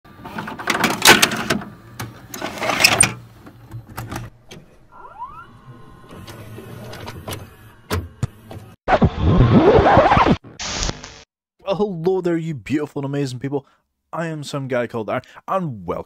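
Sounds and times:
video cassette recorder whirring: 0.1 - 8.8.

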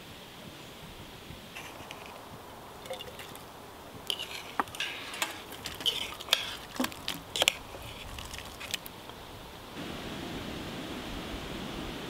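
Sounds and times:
metal spoon clinking in a can: 4.1 - 7.6.

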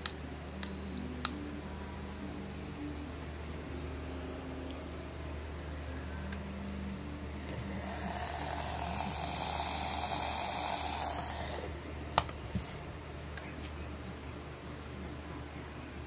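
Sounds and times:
steady low hum: 0.0 - 16.0
milk frother whisking: 7.6 - 12.8.

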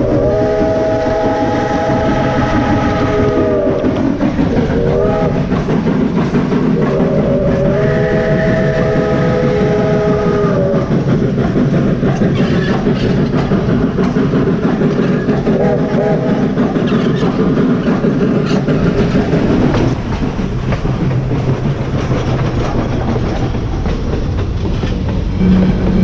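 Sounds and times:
steam locomotive whistle: 0.0 - 5.9, 6.7 - 11.1, 15.5 - 17.1, 25.4 - 26.0
train rumbling on rails: 0.0 - 26.0.

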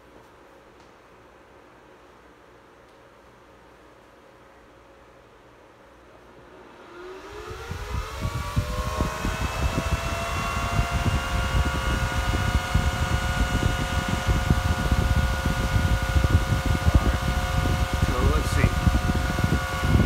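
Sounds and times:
cooling fan whine: 0.0 - 20.0
wind rumble on microphone: 7.2 - 20.0.

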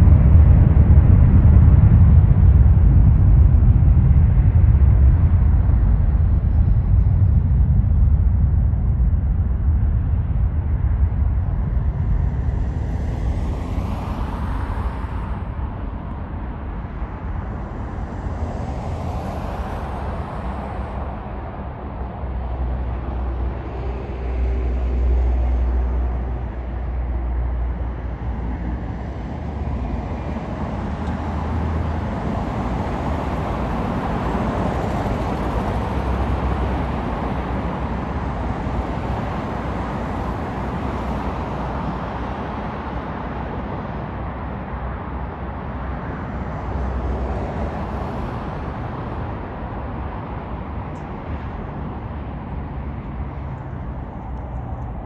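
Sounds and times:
low rumble of traffic: 0.0 - 55.0
vehicles rushing past: 9.6 - 55.0.

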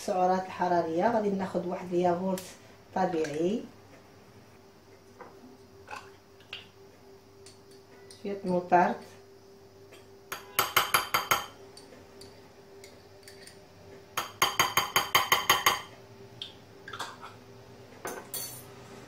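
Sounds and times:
spoon tapping glass jar: 10.3 - 13.6, 14.2 - 15.9.

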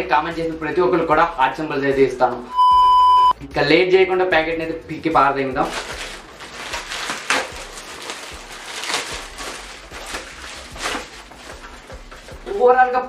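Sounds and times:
plastic bag being torn open: 5.6 - 12.3.

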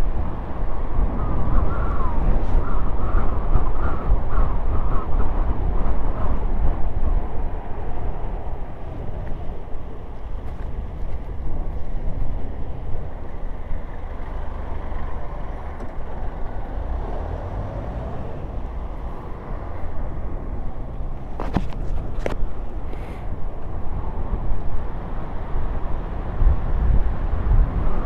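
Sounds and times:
wind rushing over microphone: 0.0 - 28.0
tyres rolling on asphalt: 5.6 - 28.0.

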